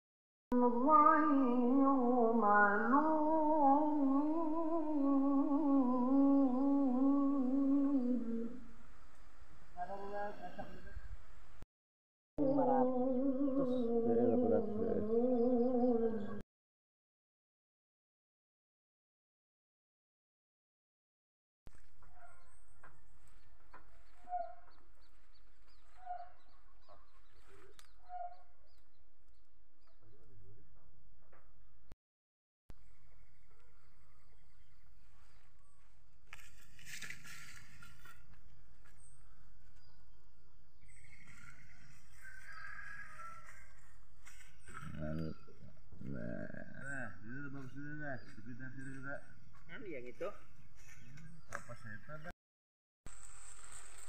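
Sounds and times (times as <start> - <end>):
person humming a slow tune: 0.5 - 8.7, 12.4 - 16.4.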